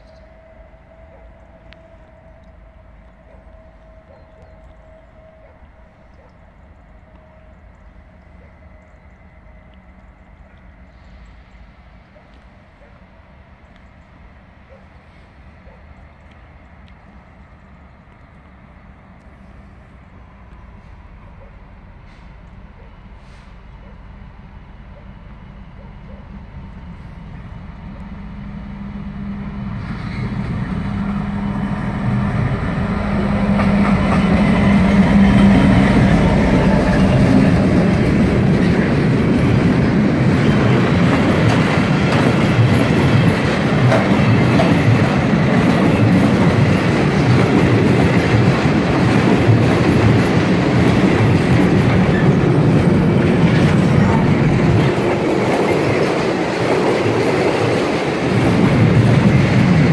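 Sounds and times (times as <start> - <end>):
diesel locomotive passing: 0.0 - 59.9
train wheels clacking over rail joints: 33.4 - 59.9.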